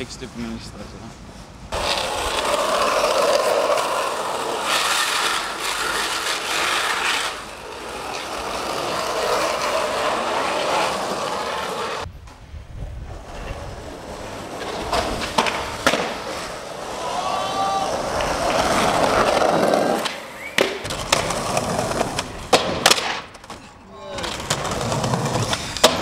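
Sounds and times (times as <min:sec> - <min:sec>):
skateboard wheels rolling on asphalt: 0:00.0 - 0:26.0
skateboard knocking on street: 0:14.6 - 0:16.9, 0:18.0 - 0:23.6.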